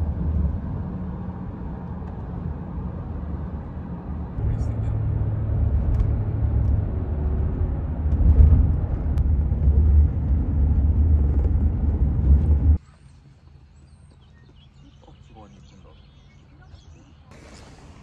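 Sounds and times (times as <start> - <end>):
car road noise rumble: 0.0 - 12.8.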